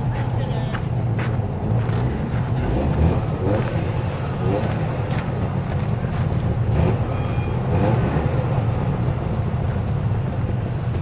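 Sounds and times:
small car engine running at low revs: 0.0 - 11.0.

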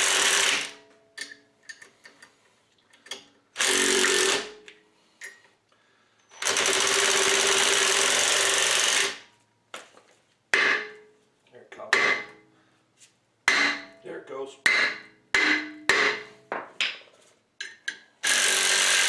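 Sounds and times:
impact driver hammering: 11.9 - 12.4, 13.5 - 14.0, 14.7 - 16.6.

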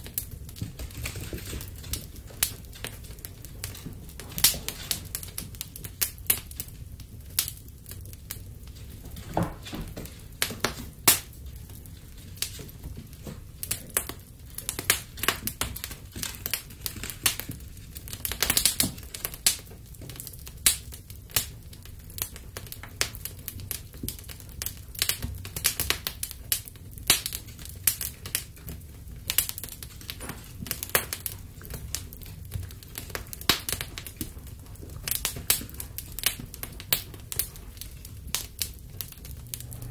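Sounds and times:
wood fire crackling: 0.0 - 39.9
low steady rumble: 39.0 - 39.9.

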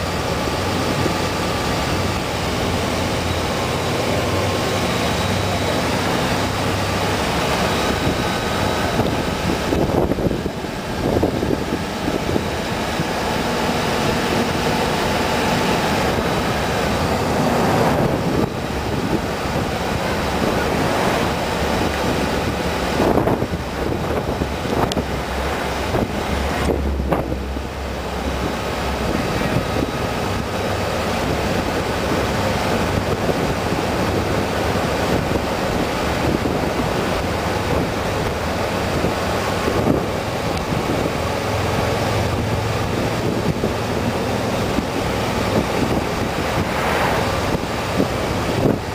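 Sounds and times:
vehicle engine: 0.0 - 48.9
wind buffeting microphone: 0.0 - 48.9.

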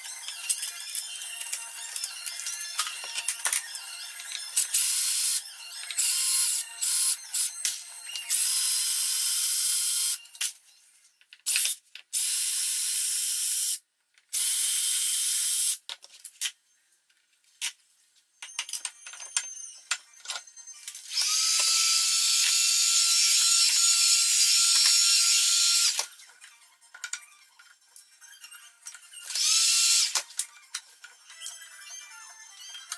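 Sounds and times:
cordless drill whining: 21.1 - 26.1, 29.3 - 30.2.

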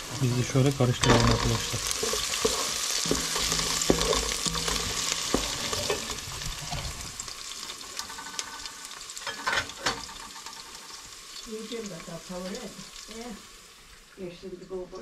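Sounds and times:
vegetables sizzling in oil: 0.0 - 15.0
wooden spoon knocking pot: 1.0 - 6.1.

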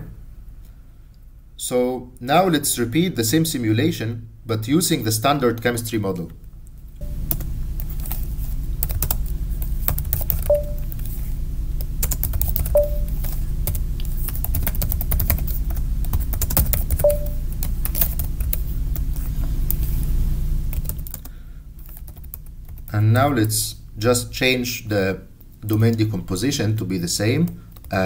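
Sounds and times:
steady low hum: 0.0 - 28.0
short beeps: 10.5 - 10.8, 12.8 - 13.1, 17.0 - 17.4.

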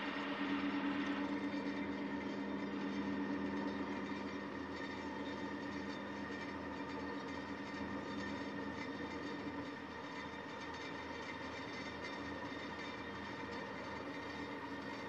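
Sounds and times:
ferry engine droning: 0.0 - 8.0.

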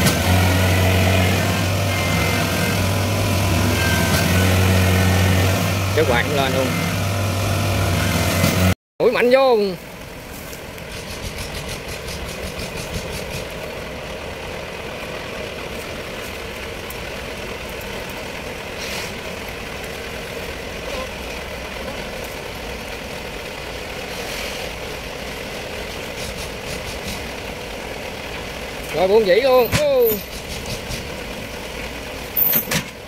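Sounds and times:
engine idling: 9.3 - 33.0.

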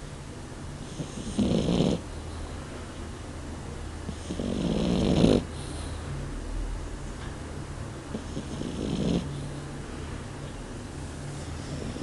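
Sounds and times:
puppy snoring: 0.8 - 2.2, 4.1 - 5.9, 8.1 - 9.5, 11.4 - 12.0.

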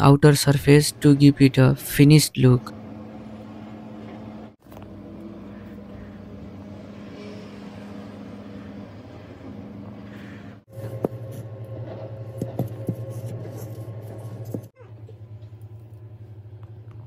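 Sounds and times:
low steady hum: 0.0 - 17.0
actuator motor humming: 0.4 - 17.0.

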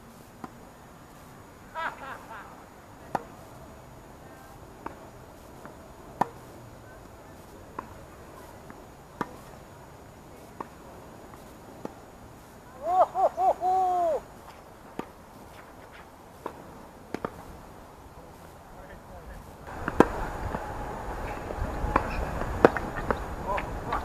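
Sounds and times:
tennis racket hitting ball: 3.0 - 12.1, 14.4 - 17.6, 19.7 - 24.0
tennis ball bouncing: 3.0 - 12.2, 14.4 - 17.6, 19.6 - 24.0.

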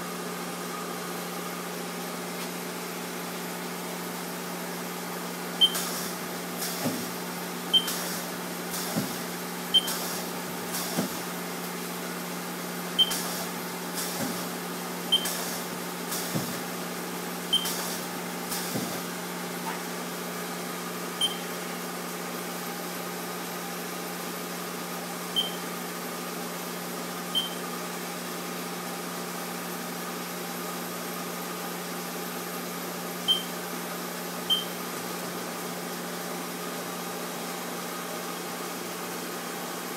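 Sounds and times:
short high beeps with clicks: 5.6 - 5.9, 7.7 - 8.0, 9.7 - 10.0, 13.0 - 13.2, 15.1 - 15.4, 17.5 - 17.8, 21.2 - 21.5, 25.4 - 25.6, 27.4 - 27.6, 33.3 - 33.5, 34.5 - 34.7.

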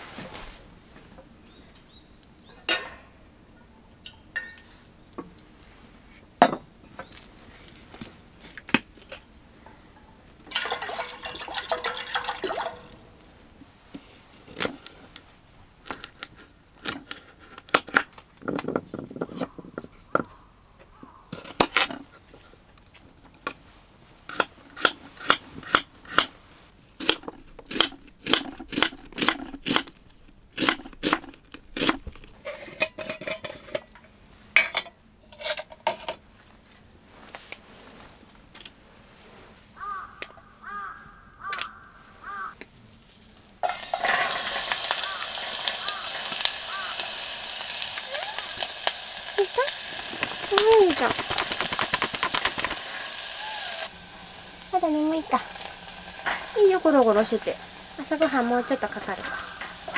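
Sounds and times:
kitchenware clinking: 2.6 - 3.1, 4.1 - 4.8, 10.5 - 13.0, 32.5 - 36.2
water poured into pan: 10.5 - 13.1, 43.6 - 53.4.

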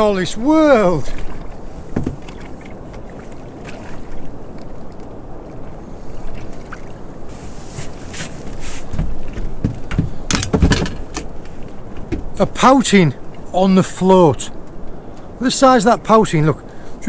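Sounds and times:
water sloshing against hull: 0.0 - 15.6
clicks and knocks: 9.0 - 12.4.

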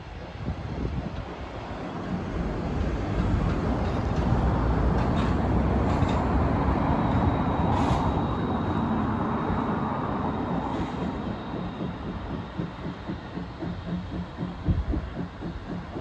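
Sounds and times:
road traffic rumble: 1.5 - 12.3.

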